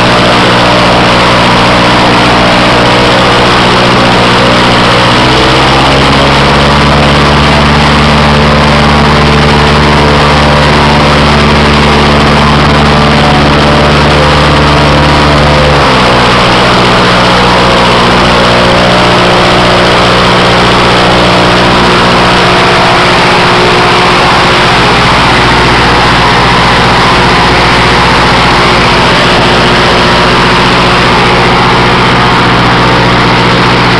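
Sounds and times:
airboat engine and propeller: 0.0s - 33.9s.

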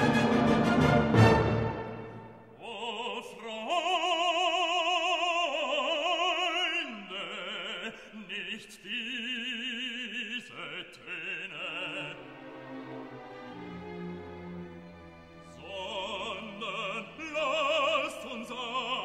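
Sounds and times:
operatic voice singing: 2.5s - 12.6s, 15.5s - 19.0s.

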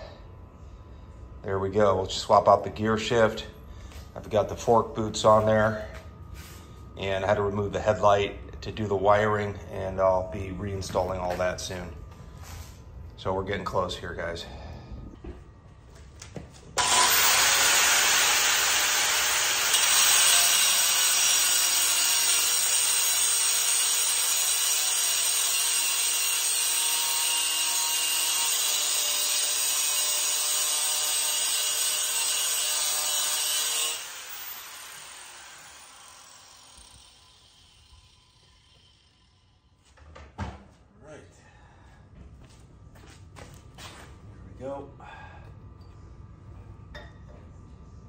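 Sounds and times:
grinder motor whining: 16.8s - 29.5s, 30.9s - 39.0s
grinder disc spinning down: 16.8s - 29.7s, 31.0s - 39.3s
angle grinder grinding metal: 16.8s - 39.4s.

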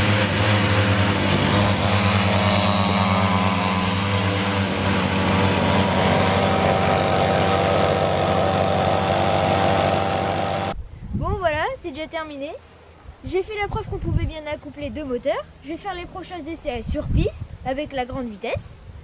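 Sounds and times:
buzzing two-stroke engines: 0.0s - 10.8s.

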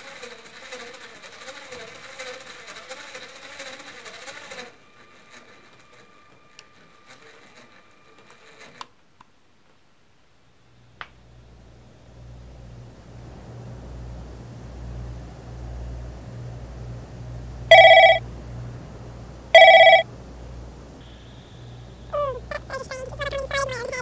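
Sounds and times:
small electric motor whirring: 0.0s - 8.9s
faint whine: 4.7s - 24.0s.

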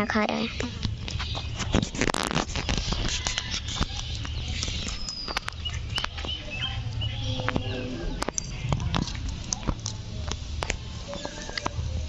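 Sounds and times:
parrot cracking seeds: 1.1s - 6.3s.

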